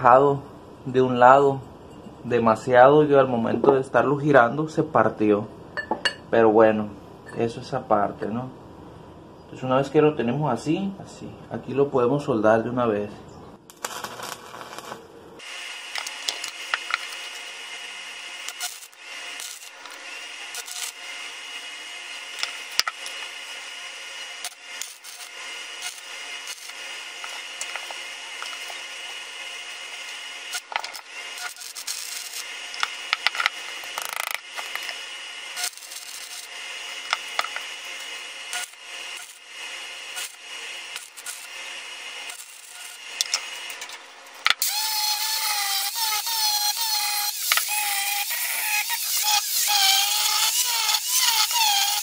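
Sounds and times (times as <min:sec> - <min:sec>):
arc welding crackling hiss: 0:13.6 - 0:52.0.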